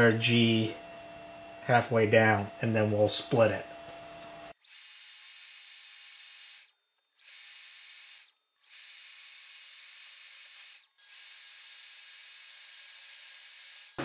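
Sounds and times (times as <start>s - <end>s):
drill whining into metal: 4.5s - 14.0s.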